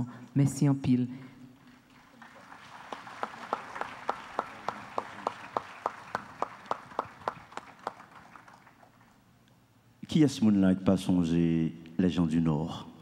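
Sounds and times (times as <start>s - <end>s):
audience applauding: 1.6s - 9.2s
sharp rhythmic claps: 1.7s - 9.2s.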